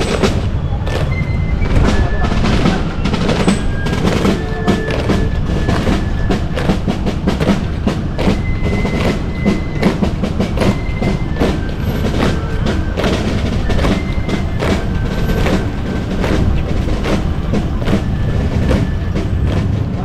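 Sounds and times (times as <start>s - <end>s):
percussive march music: 0.0s - 20.0s.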